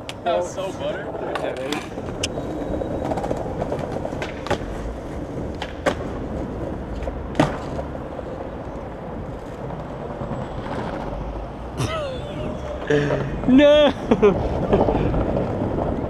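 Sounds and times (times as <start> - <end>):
skateboard clacking on ground: 0.0 - 11.4
skateboard wheels rolling on stone: 0.0 - 16.0.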